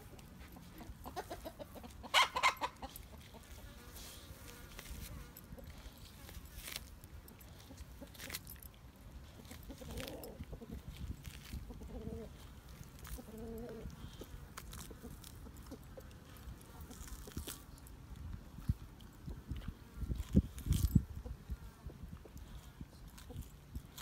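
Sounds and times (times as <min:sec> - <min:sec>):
bone clicks and crunches: 0:04.8 - 0:21.0, 0:22.3 - 0:24.0
dog chewing and tearing meat: 0:05.7 - 0:21.0.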